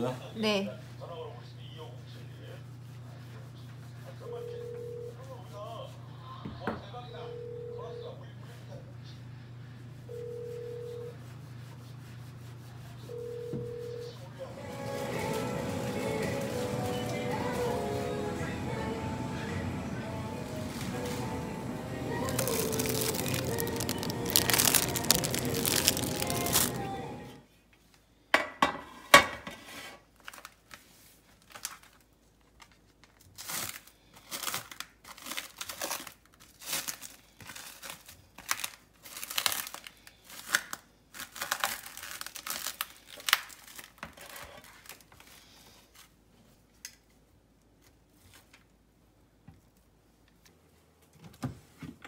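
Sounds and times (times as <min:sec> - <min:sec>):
music: 0:14.5 - 0:27.4
plastic cling wrap crinkling and tearing: 0:22.0 - 0:27.2, 0:30.0 - 0:46.1.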